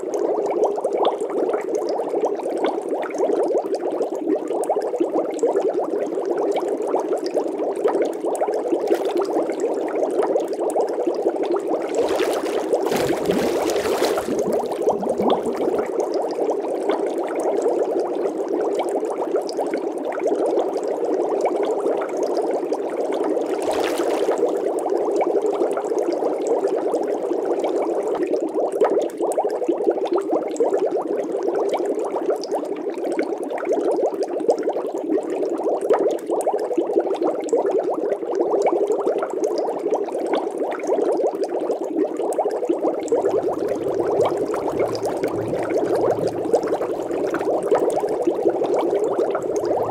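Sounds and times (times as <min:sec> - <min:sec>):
muffled bubbling water: 0:04.3 - 0:20.2, 0:22.8 - 0:25.8, 0:41.5 - 0:49.9
low rumble: 0:43.1 - 0:49.9.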